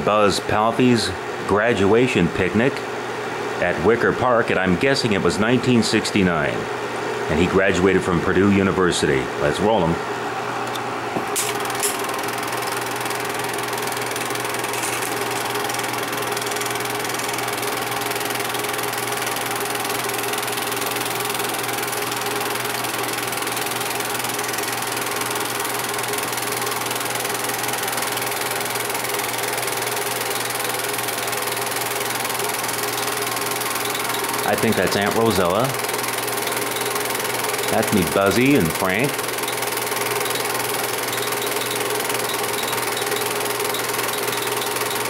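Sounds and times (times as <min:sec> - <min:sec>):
projector hum: 0:00.0 - 0:45.0
film projector clatter: 0:11.3 - 0:45.0.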